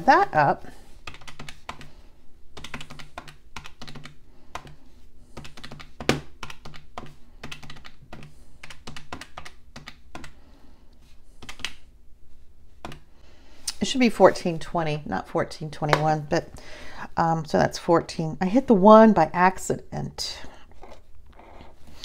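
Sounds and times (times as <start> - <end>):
calculator keys tapping: 1.0 - 1.9, 2.5 - 10.4, 11.4 - 11.8, 12.8 - 13.1.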